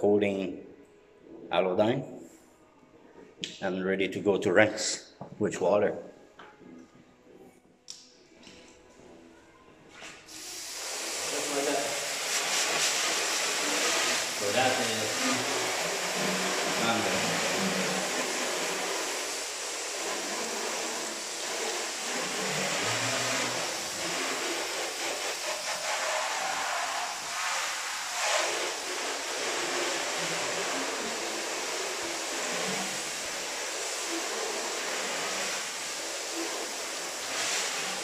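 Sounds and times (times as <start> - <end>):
water spraying on metal: 10.3 - 38.0.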